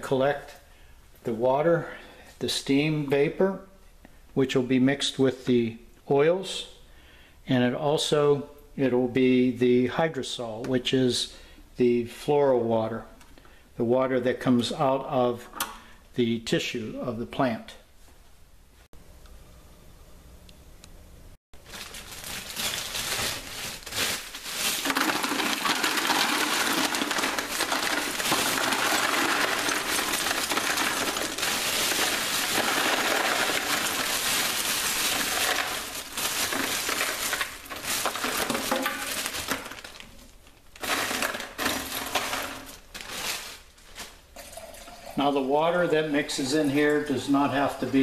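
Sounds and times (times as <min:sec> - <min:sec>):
ice cubes poured into a bucket: 0:21.7 - 0:40.1, 0:40.8 - 0:43.7.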